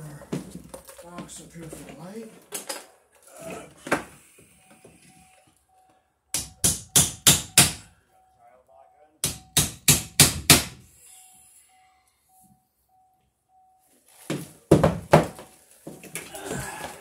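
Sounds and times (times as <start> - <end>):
hammer driving nails: 6.3 - 7.9, 9.2 - 10.8.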